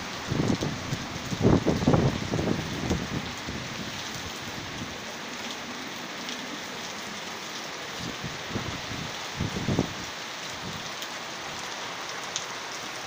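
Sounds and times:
heavy rain pouring: 0.0 - 13.0.

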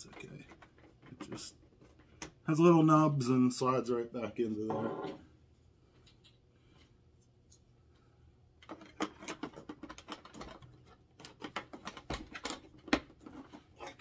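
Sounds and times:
plastic parts clicking and rattling: 0.0 - 2.4, 8.6 - 14.0.

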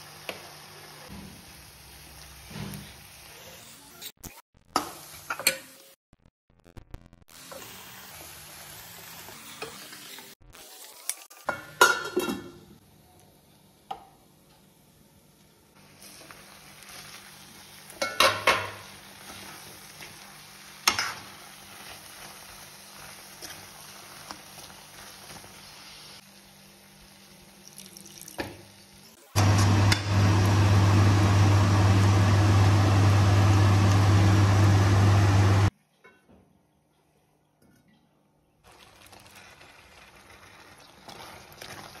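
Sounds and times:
food sizzling in a pan: 0.0 - 4.1, 4.8 - 6.0, 7.3 - 12.8, 15.7 - 35.7, 38.7 - 42.0
electric fan motor humming: 29.4 - 35.7.

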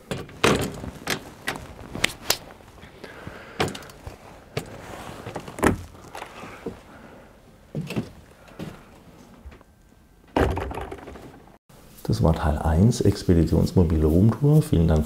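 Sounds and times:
door unlatching and opening: 0.0 - 1.6.

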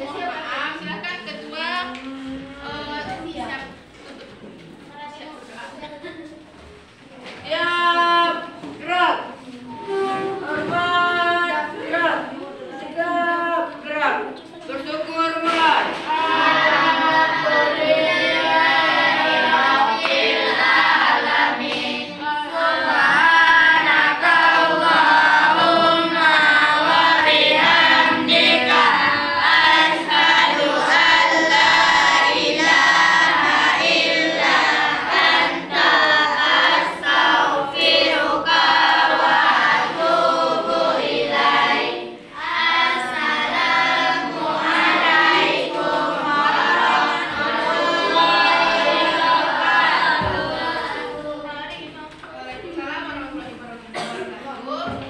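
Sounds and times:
choir singing: 15.8 - 51.4.

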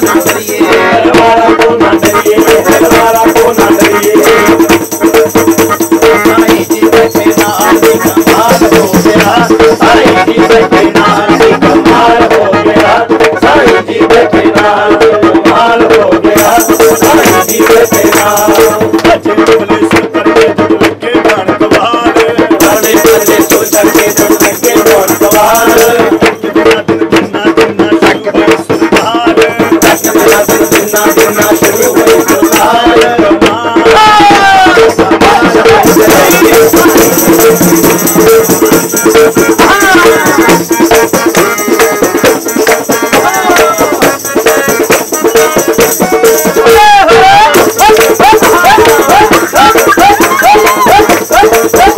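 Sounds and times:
group singing devotional song: 0.0 - 51.9
hand clapping: 35.8 - 51.9.

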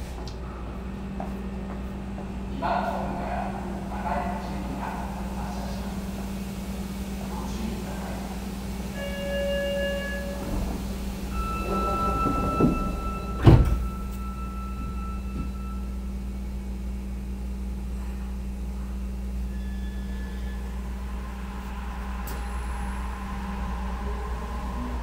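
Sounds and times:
train car low hum: 0.0 - 25.0
steady door warning tone: 8.9 - 16.4
train doors closing thump: 10.3 - 15.6.

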